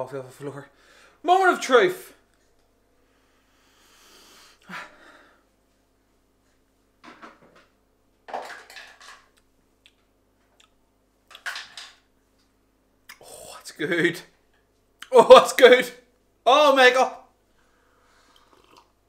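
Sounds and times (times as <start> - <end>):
man slurping coffee: 18.2 - 19.0.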